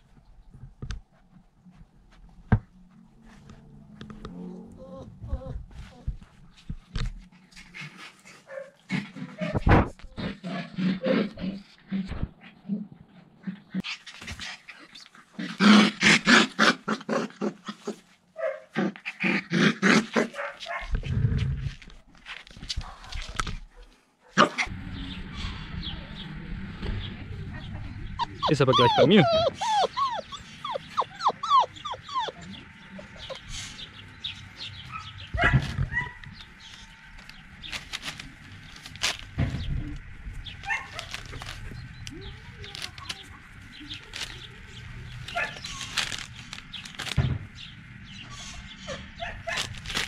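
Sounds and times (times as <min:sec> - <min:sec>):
puppies yapping and growling: 0:04.3 - 0:06.4, 0:28.0 - 0:50.0
puppy yelp: 0:28.2 - 0:33.4, 0:40.6 - 0:41.4.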